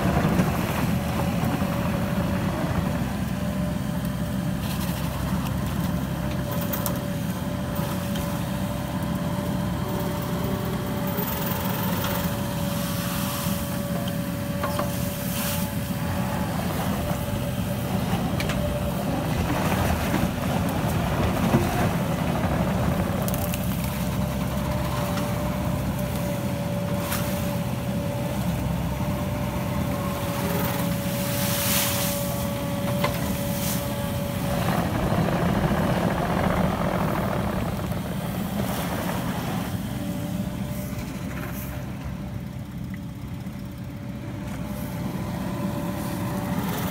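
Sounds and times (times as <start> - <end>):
diesel engine running under load: 0.0 - 46.9
crackling of cutting grass: 29.9 - 41.6.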